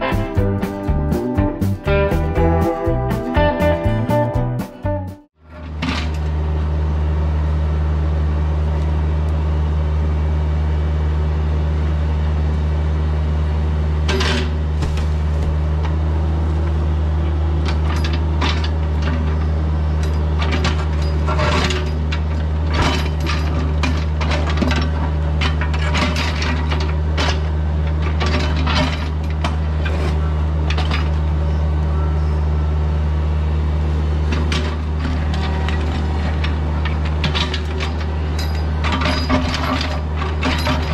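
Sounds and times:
excavator diesel engine running: 0.0s - 40.9s
steel bucket clanking against rock: 36.4s - 40.9s.

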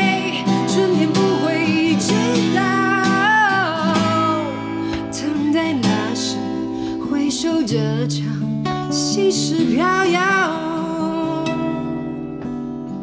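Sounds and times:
woman singing a ballad: 0.0s - 12.5s
acoustic guitar: 0.0s - 13.0s.

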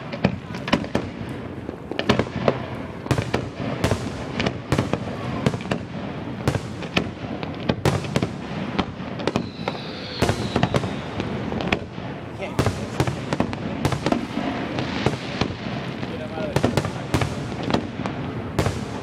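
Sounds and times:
fireworks crackling: 0.0s - 19.0s
firework shells bursting: 6.7s - 19.0s
faint high whistle: 9.3s - 11.3s.

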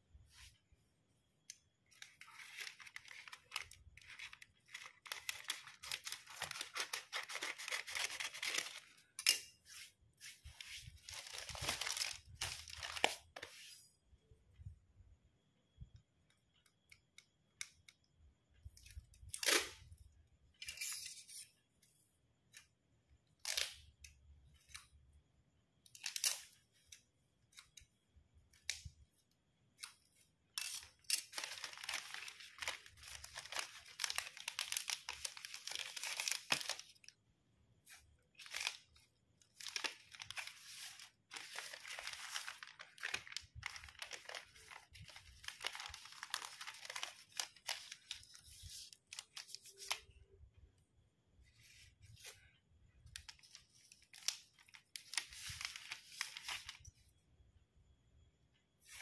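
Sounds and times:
plastic sheet crinkling: 1.8s - 13.7s, 30.5s - 37.2s, 37.8s - 50.2s, 51.5s - 57.1s.

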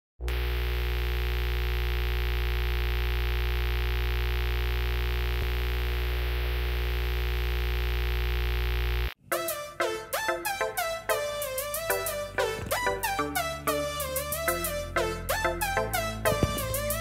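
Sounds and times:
loud electrical hum: 0.2s - 9.2s.

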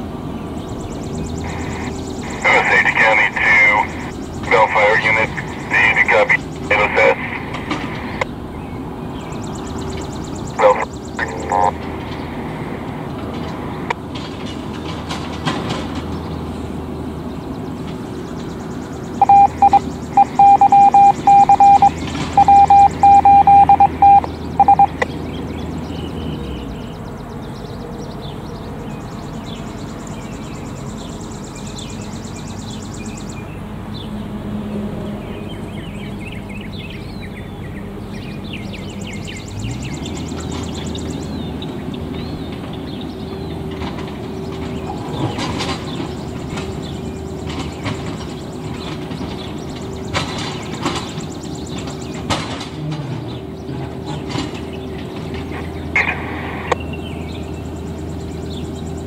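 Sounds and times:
low engine rumble: 0.0s - 59.0s
faint bird chirps: 18.5s - 25.1s
beeping tone: 19.2s - 25.0s.

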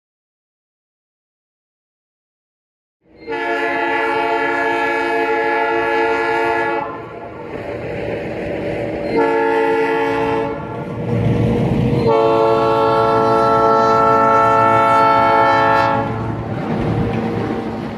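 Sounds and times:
locomotive air horn: 3.1s - 7.3s, 9.1s - 10.8s, 11.9s - 16.4s
locomotive engine running: 5.0s - 17.9s.

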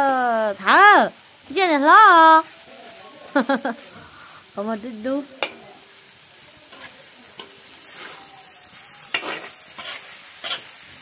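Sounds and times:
food sizzling in a wok: 0.0s - 11.0s
metal spatula scraping a wok: 5.2s - 11.0s.

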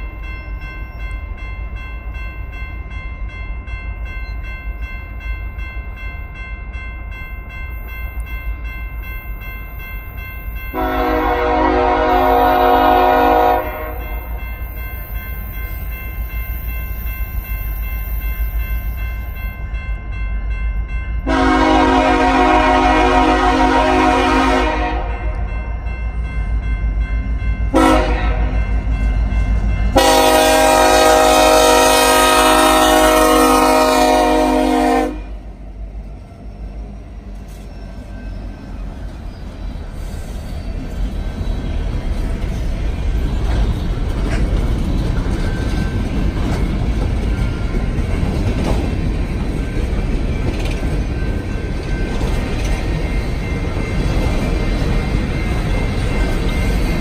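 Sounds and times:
train rumble and wheel noise: 0.0s - 57.0s
train horn blasts: 10.7s - 14.4s, 21.2s - 25.7s, 27.7s - 28.7s, 29.9s - 35.5s.

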